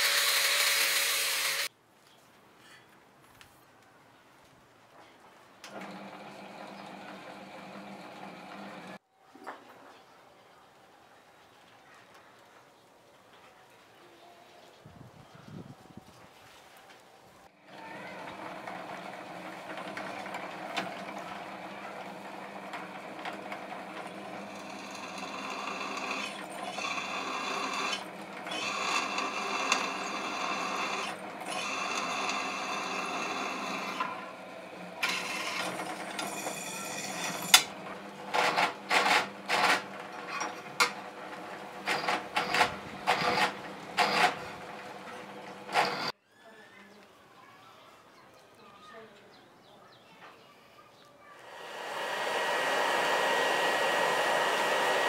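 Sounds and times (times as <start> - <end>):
drill bit cutting steel: 0.0 - 1.7, 24.0 - 34.4, 35.0 - 37.7, 41.8 - 44.5, 45.7 - 46.1
drill press motor humming: 0.0 - 1.7, 5.7 - 9.0, 17.7 - 46.1, 51.4 - 55.0.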